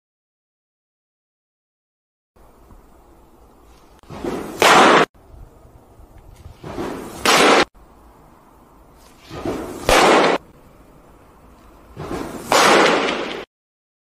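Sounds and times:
baseball whooshing: 0:04.0 - 0:05.1, 0:06.4 - 0:07.7, 0:09.0 - 0:10.4, 0:11.9 - 0:13.5
baseball smacking into mitt: 0:12.0 - 0:13.4.

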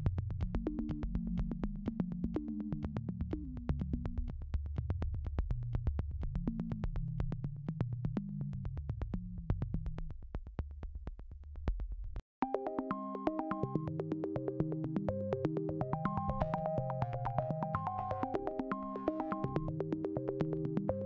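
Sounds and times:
ticking beat: 0:12.6 - 0:21.0.

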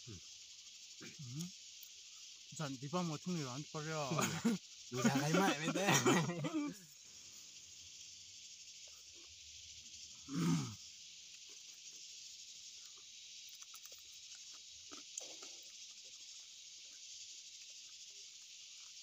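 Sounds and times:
high-pitched insect drone: 0:00.0 - 0:19.0
people eating by hand: 0:04.1 - 0:06.8, 0:12.8 - 0:16.3
person grunting: 0:05.0 - 0:06.8, 0:10.3 - 0:10.7.

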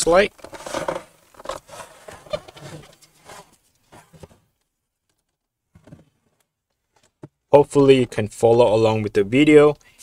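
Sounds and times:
computer scraping on table: 0:00.5 - 0:04.4.

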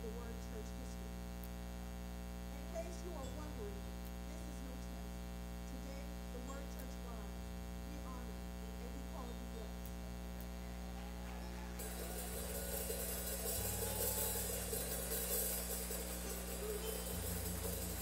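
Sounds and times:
electrical mains hum: 0:00.0 - 0:18.0
faint indistinct voices: 0:10.7 - 0:18.0
cymbal wash: 0:11.5 - 0:18.0.

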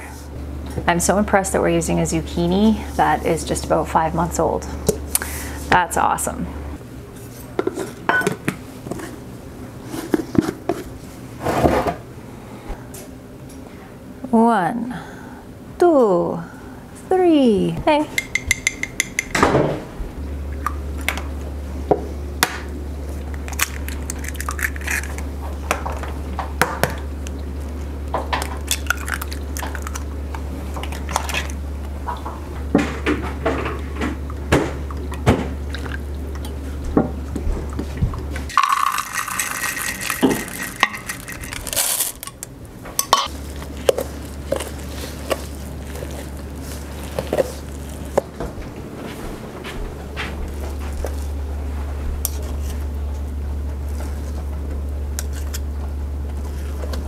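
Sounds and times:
steady low hum: 0:00.0 - 0:57.0
spoon clinking against metal bowl: 0:18.2 - 0:19.3
oil being poured: 0:38.5 - 0:41.6
thick batter being stirred: 0:43.3 - 0:48.4.

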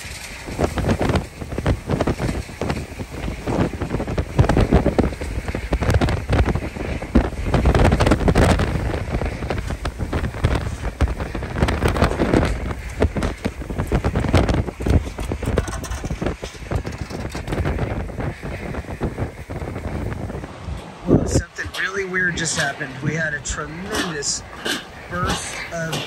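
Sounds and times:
heavy rain: 0:00.0 - 0:26.0
hurricane wind gusting: 0:00.0 - 0:26.0
wind buffeting microphone: 0:00.0 - 0:26.0.

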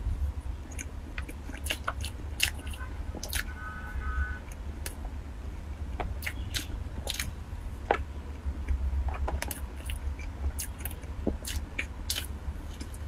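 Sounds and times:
low steady hum: 0:00.0 - 0:13.0
cakes pulled apart and chewed: 0:00.7 - 0:03.5, 0:06.2 - 0:07.3, 0:09.1 - 0:13.0.

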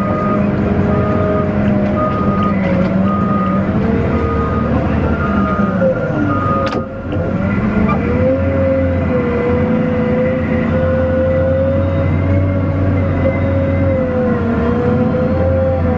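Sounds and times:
reverse alarm beeping: 0:00.0 - 0:07.0
diesel engine running: 0:00.0 - 0:15.9.

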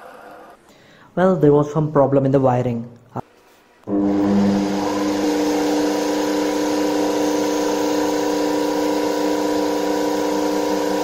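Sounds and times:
electric motor hum: 0:03.8 - 0:11.0.

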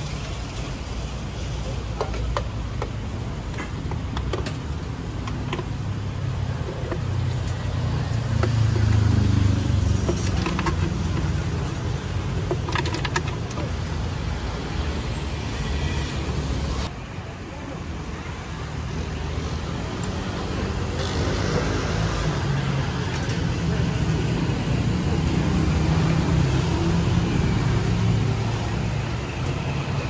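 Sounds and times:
traffic engine rumble: 0:00.0 - 0:30.0
vehicle passing close: 0:07.6 - 0:11.8.

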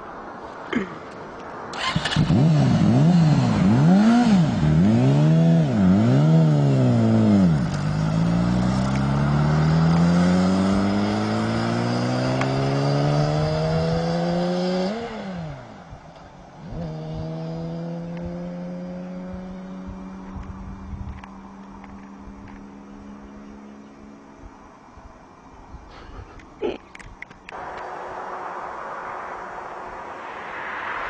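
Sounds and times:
motorcycle engine revving: 0:01.8 - 0:15.7, 0:16.6 - 0:23.9.

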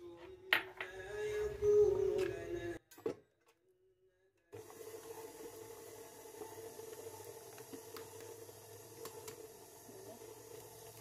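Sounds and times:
stand mixer motor running: 0:04.6 - 0:11.0.

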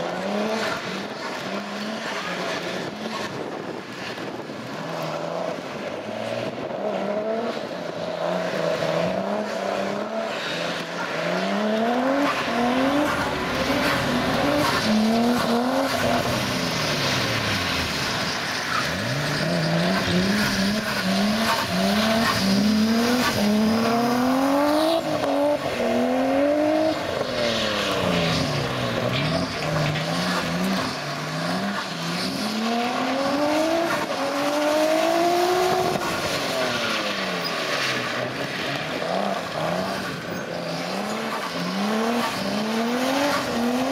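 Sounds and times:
car engine revving: 0:00.0 - 0:43.9.

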